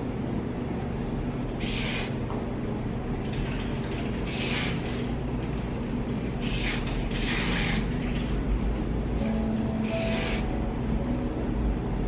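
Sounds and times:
spray bottle hissing: 1.6 - 2.2, 4.3 - 4.8, 6.4 - 7.8, 9.8 - 10.5.

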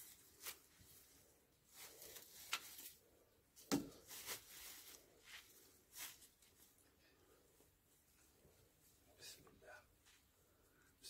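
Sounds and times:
dry straw rustling: 0.0 - 6.8.

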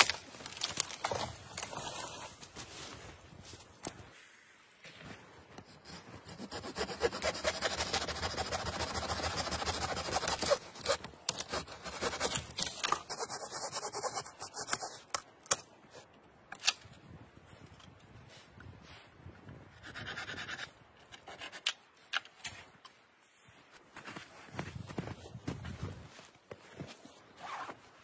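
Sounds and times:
branch cracking: 0.0 - 1.8
hand saw cutting branch: 6.2 - 15.1.

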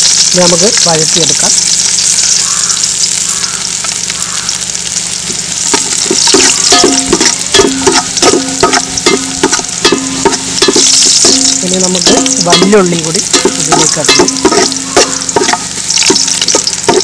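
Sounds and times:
ginger and garlic sizzling in oil: 0.0 - 17.0
metal pot ringing: 5.7 - 17.0
spatula scraping and knocking pot: 5.7 - 17.0.

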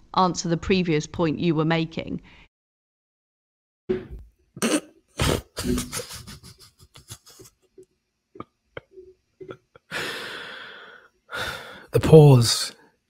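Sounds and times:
man laughing: 5.2 - 7.6.

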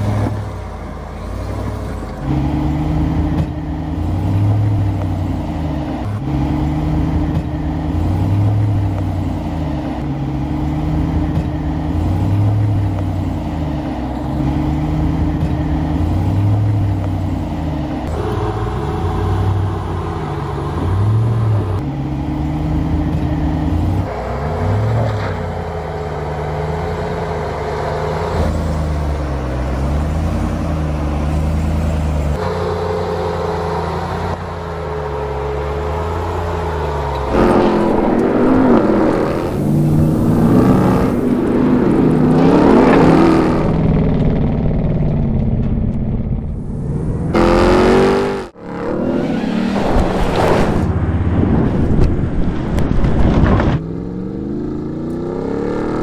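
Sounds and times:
truck engine rumbling: 0.0 - 56.0.

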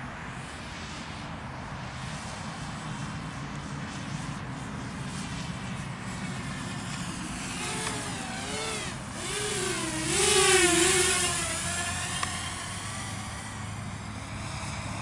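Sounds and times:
drone propellers whining: 4.0 - 15.0.

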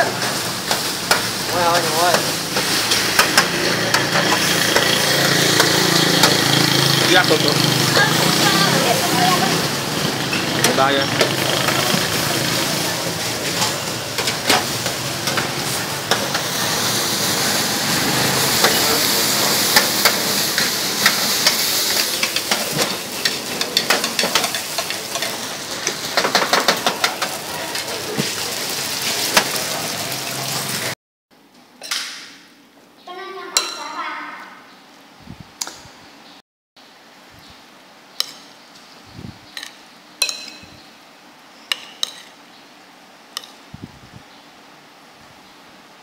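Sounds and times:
noodles sizzling on griddle: 0.0 - 31.0.

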